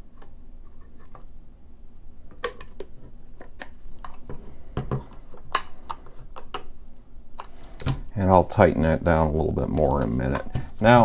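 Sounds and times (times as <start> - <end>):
hard plastic parts clicking: 2.3 - 6.7, 9.7 - 11.0.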